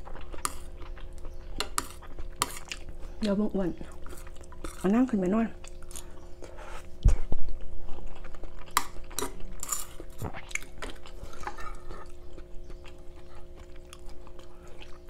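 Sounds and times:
faint steady hum: 0.0s - 15.0s
spoon clicks and scrapes: 1.6s - 2.8s, 8.7s - 10.4s.

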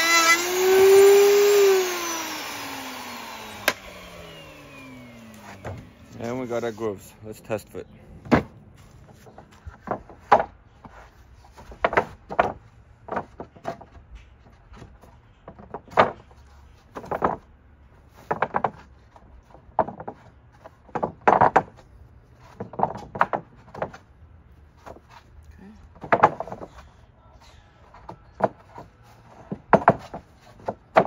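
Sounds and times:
wood scraping on wood: 0.0s - 31.0s
wooden boards knocking: 5.4s - 6.4s, 8.2s - 17.5s, 18.1s - 24.1s, 26.0s - 26.8s, 28.0s - 31.0s.

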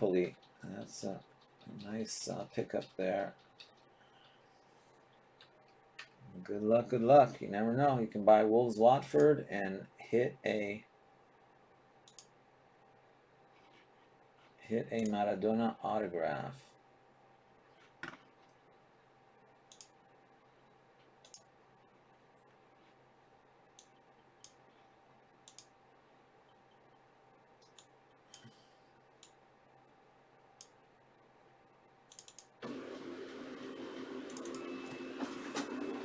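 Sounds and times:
steady noise with low hum: 0.0s - 36.0s
computer mouse clicks: 0.2s - 4.4s, 12.0s - 12.3s, 19.7s - 20.0s, 21.1s - 21.5s, 23.7s - 24.6s, 25.4s - 25.7s, 27.6s - 28.6s, 32.1s - 32.5s, 34.3s - 34.6s
keystrokes: 32.1s - 32.5s.

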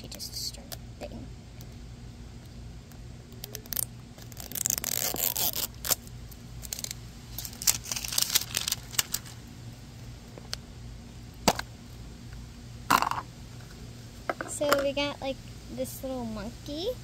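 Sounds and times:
paper wrapper tearing: 3.4s - 9.4s.

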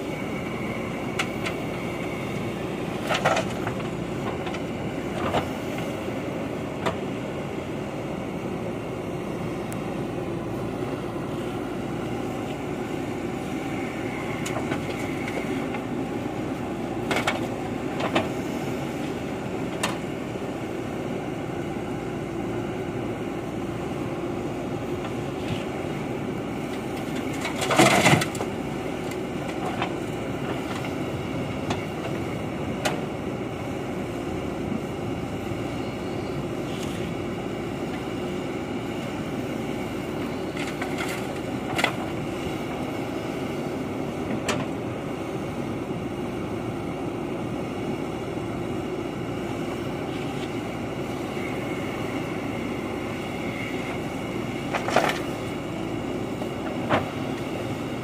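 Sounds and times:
backhoe diesel engine running: 0.0s - 58.0s
clatter of gravel: 3.0s - 5.9s, 26.7s - 31.0s, 40.2s - 42.2s, 54.6s - 55.4s.

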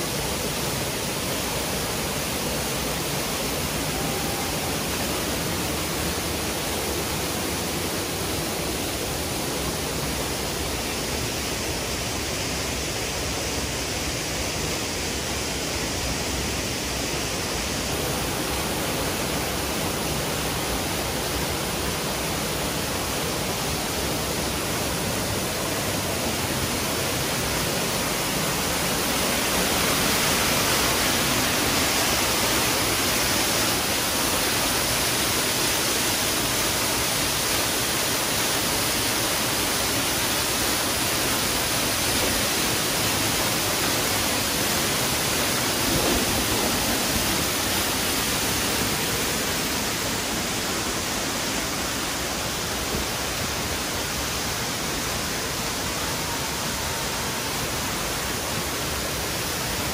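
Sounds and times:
waterfall rushing and splashing: 0.0s - 59.9s.

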